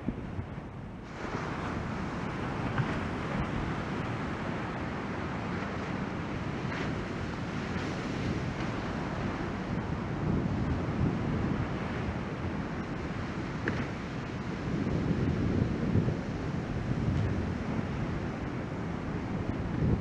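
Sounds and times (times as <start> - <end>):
wind buffeting microphone: 0.0 - 20.0
ocean waves breaking: 1.0 - 20.0.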